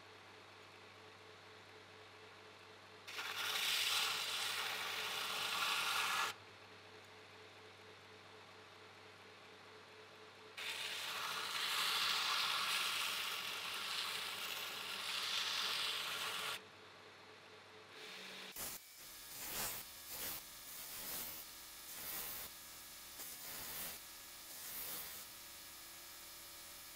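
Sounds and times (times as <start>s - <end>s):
steel grinding on belt grinder: 10.6s - 16.6s.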